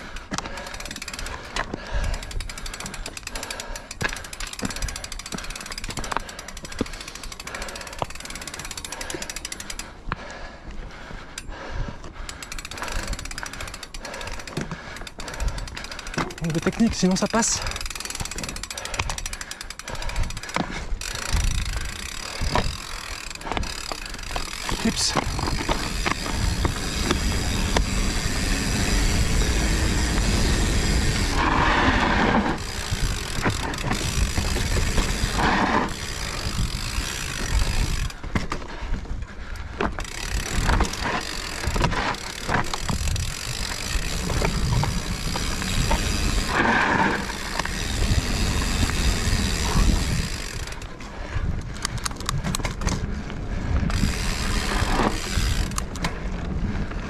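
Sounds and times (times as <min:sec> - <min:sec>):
freehub ratchet clicking: 0:00.0 - 0:10.0, 0:12.2 - 0:38.6, 0:39.5 - 0:57.0
rumble of tyres: 0:00.0 - 0:57.0
wind: 0:00.0 - 0:57.0
chain and frame rattling: 0:12.4 - 0:31.4.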